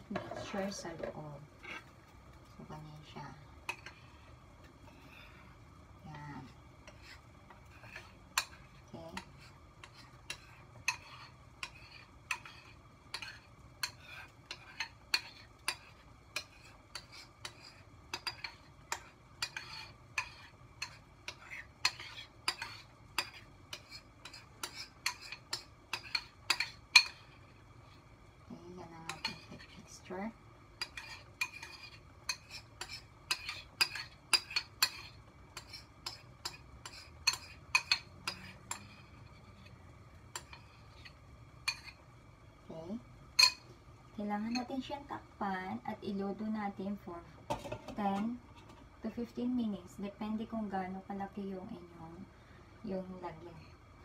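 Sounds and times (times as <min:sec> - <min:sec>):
spoon scraping ceramic bowl: 0:00.1 - 0:01.9, 0:06.8 - 0:27.3, 0:30.8 - 0:39.7.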